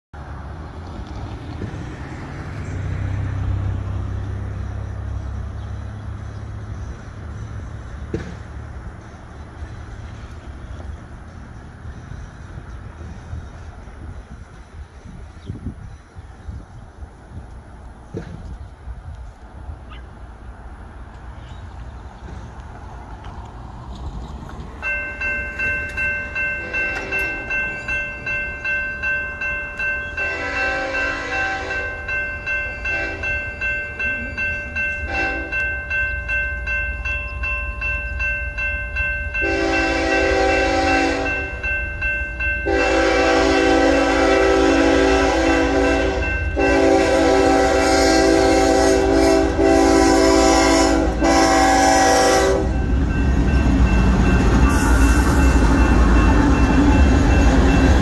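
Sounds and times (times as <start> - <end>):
railroad crossing bell ringing: 2.6 - 8.0, 24.7 - 58.0
train air horn blasts: 30.2 - 32.0, 32.9 - 33.4, 35.1 - 35.7, 39.4 - 41.6, 42.6 - 52.9, 54.6 - 55.9.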